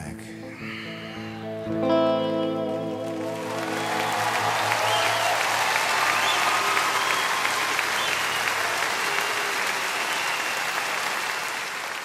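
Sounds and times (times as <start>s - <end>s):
audience applauding and cheering: 2.8s - 12.0s
shrill whistles: 3.6s - 11.5s.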